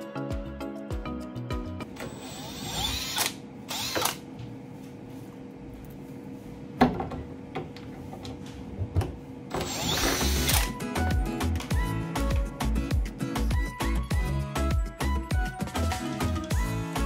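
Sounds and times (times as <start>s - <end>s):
cordless drill motor whine: 2.0s - 4.2s, 9.6s - 10.7s.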